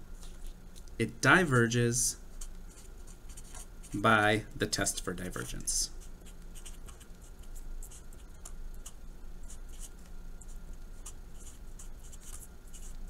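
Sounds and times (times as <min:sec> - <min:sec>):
marker scratching on paper: 0:02.4 - 0:04.0, 0:05.4 - 0:10.0, 0:11.0 - 0:13.0.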